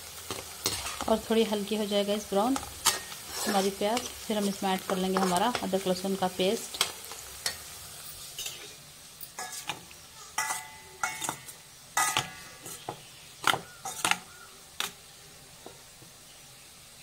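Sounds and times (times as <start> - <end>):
onions sizzling in oil: 0.0 - 17.0
metal spoon clinking on colander: 10.4 - 12.8.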